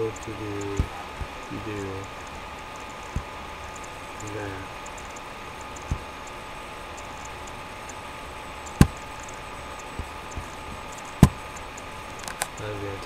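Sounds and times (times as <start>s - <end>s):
steady background hum: 0.0s - 13.0s
computer mouse clicks: 8.6s - 12.7s.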